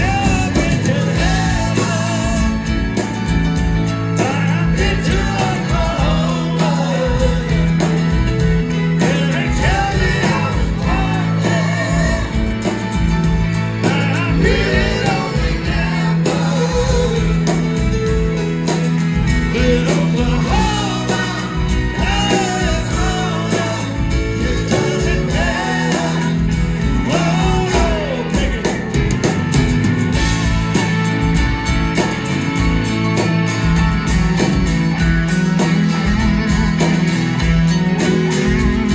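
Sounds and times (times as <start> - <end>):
lead singer singing: 0.0 - 3.3, 4.1 - 18.4, 19.1 - 29.3
live rock band playing: 0.0 - 38.9.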